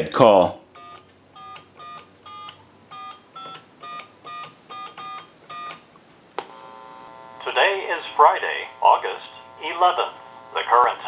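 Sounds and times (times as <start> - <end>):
keypad dial tone beeps: 0.8 - 5.8.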